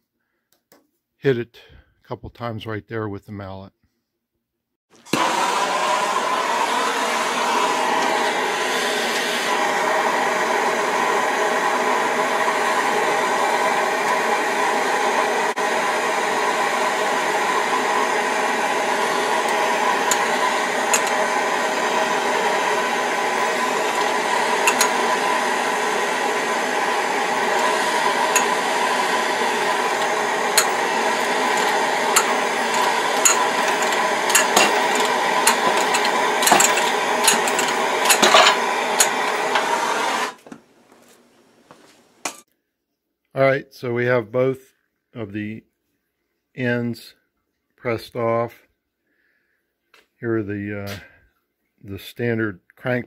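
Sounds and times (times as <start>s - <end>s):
gas torch burning: 5.0s - 40.7s.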